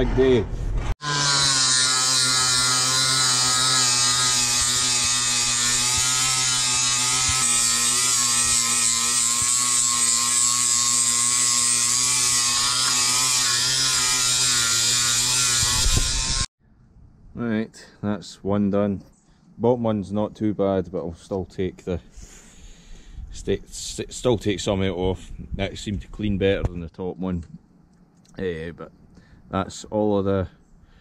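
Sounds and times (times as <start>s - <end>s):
angle grinder on steel: 1.0s - 16.5s.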